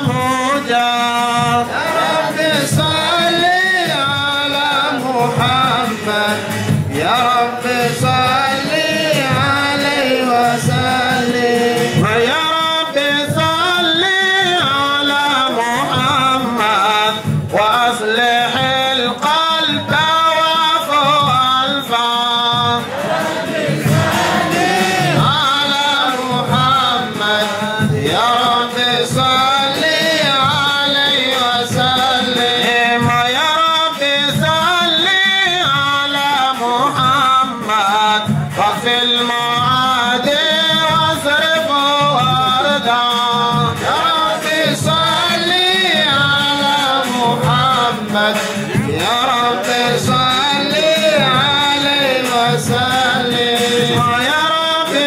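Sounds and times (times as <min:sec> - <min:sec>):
man chanting into a microphone: 0:00.0 - 0:22.9, 0:25.0 - 0:55.0
steady low drumbeat: 0:22.4 - 0:33.6.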